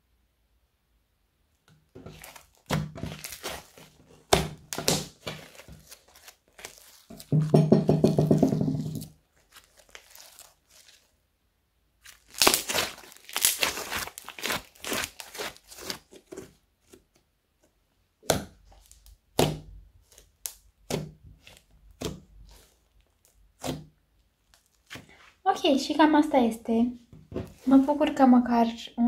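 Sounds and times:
foam slime crackling: 2.0s - 7.6s, 8.4s - 11.2s, 12.0s - 16.4s.

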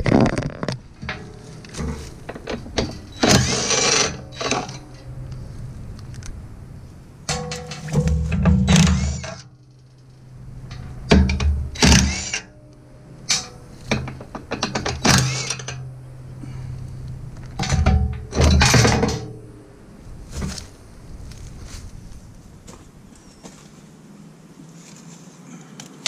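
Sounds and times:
impact wrench rattling: 0.6s - 5.0s, 7.3s - 9.4s, 10.6s - 12.5s, 13.3s - 15.9s, 17.4s - 19.3s.

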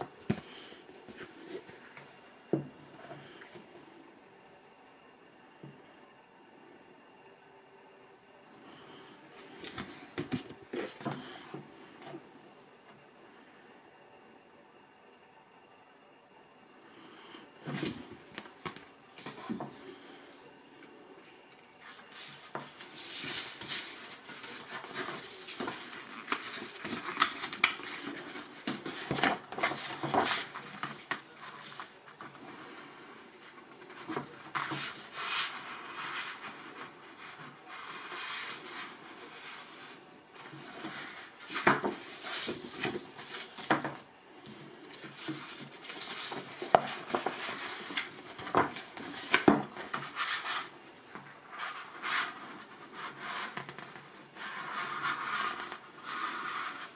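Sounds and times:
paper rustling and sliding: 20.8s - 44.0s, 45.0s - 50.8s
paper crinkles: 21.2s - 32.4s.

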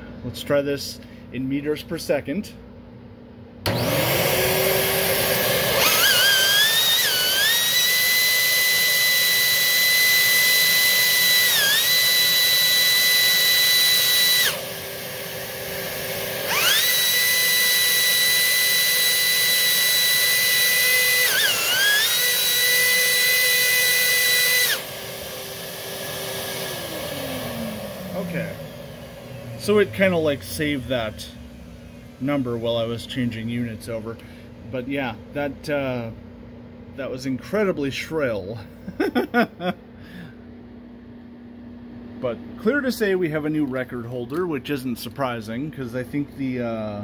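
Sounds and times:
vacuum motors whining: 3.6s - 34.0s.

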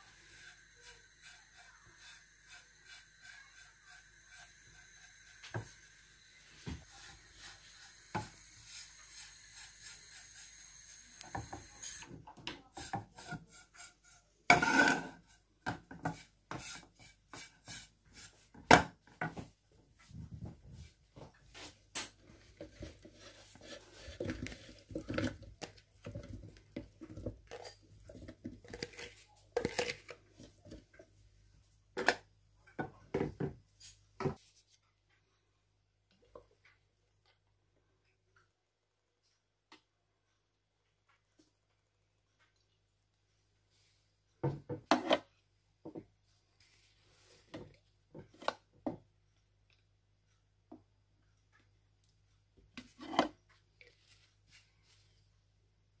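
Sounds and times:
faint steady whine: 0.0s - 12.2s.

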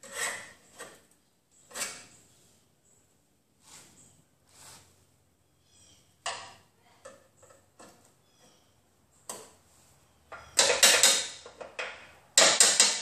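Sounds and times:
chisel striking sheet steel: 10.3s - 13.0s.

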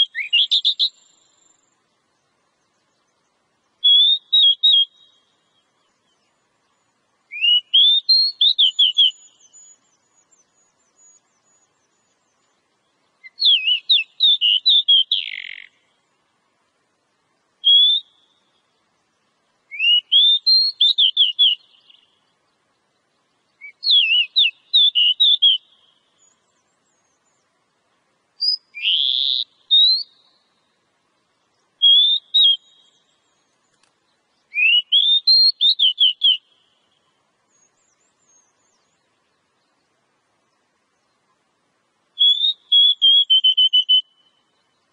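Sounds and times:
bird singing whistled phrases: 0.0s - 1.6s, 3.8s - 6.2s, 7.3s - 12.1s, 13.2s - 15.8s, 17.6s - 18.4s, 19.7s - 22.2s, 23.6s - 27.2s, 28.4s - 30.5s, 31.8s - 33.5s, 34.5s - 36.8s, 42.2s - 44.6s.

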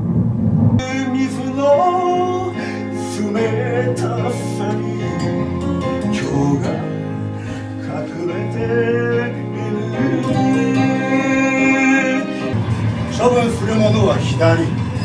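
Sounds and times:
person singing: 0.8s - 12.6s
acoustic guitar playing: 0.8s - 15.0s.

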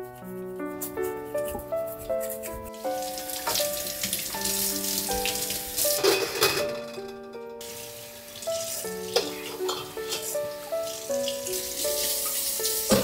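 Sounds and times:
soft background music: 0.0s - 13.0s
water running into steel sink: 2.7s - 13.0s.

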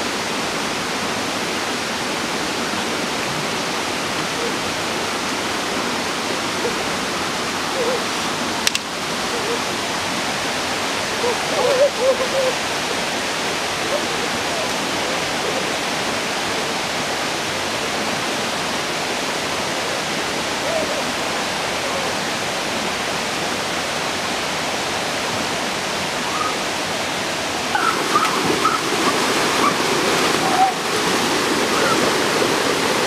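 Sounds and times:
waterfall rushing: 0.0s - 33.0s
people splashing into water: 27.7s - 33.0s.

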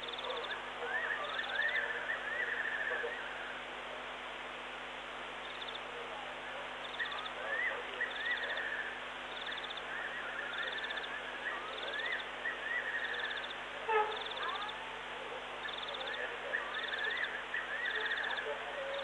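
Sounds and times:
whistled gliding calls: 0.1s - 3.5s, 6.9s - 15.0s, 15.6s - 19.0s.

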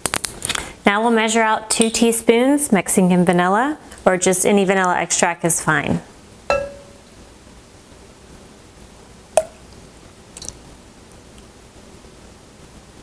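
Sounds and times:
spoon clinking against glass: 6.5s - 7.0s.

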